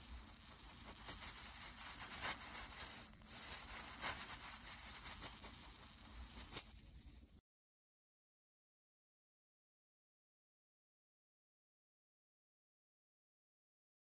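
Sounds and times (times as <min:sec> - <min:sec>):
floral foam crunching: 0:00.0 - 0:06.8.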